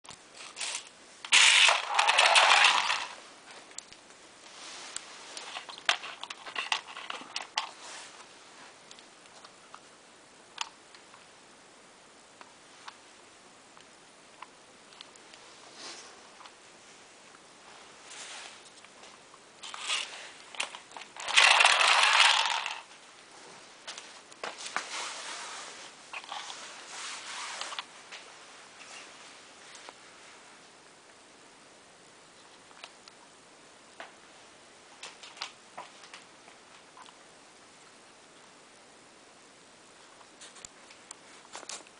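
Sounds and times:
wind-up toy whirring rattle: 0:00.4 - 0:03.2, 0:05.4 - 0:07.7, 0:19.6 - 0:22.9.

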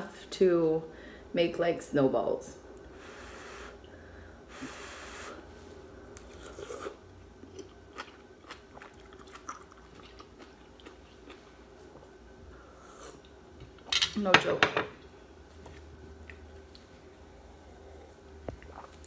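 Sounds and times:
chewing: 0:06.2 - 0:11.5
person slurping soup: 0:06.3 - 0:07.0.

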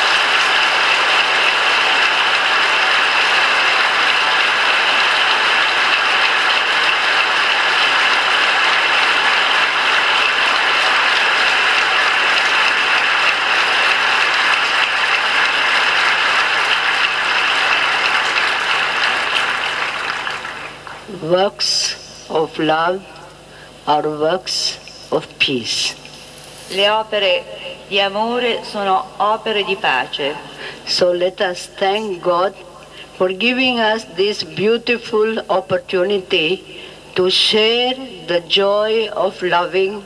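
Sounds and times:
audience applauding: 0:00.0 - 0:21.1.

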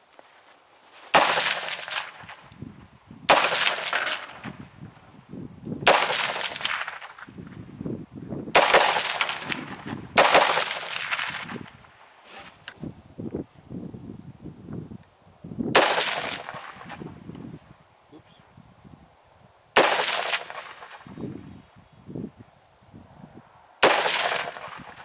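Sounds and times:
rifle shots echoing: 0:01.1 - 0:02.4, 0:03.3 - 0:04.6, 0:05.8 - 0:07.3, 0:08.6 - 0:11.8, 0:15.7 - 0:17.0, 0:19.8 - 0:21.2, 0:23.8 - 0:25.0.

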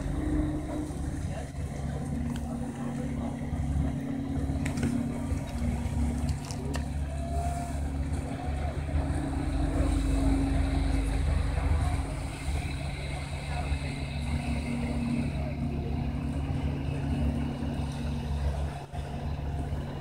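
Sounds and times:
ferry engine humming: 0:00.0 - 0:20.0.

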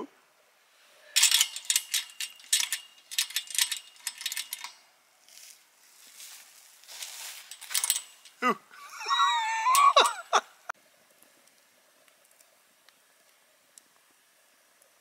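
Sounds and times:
fire crackling: 0:00.3 - 0:15.0.

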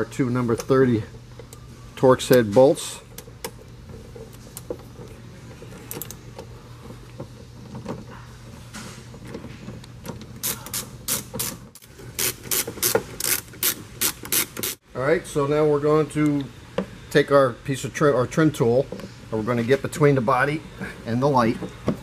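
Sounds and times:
ratchet clicking: 0:10.4 - 0:14.8.

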